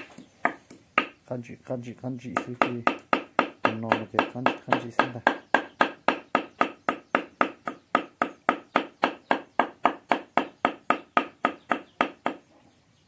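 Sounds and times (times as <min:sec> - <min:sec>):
knife chopping on wooden block: 0:02.4 - 0:12.4.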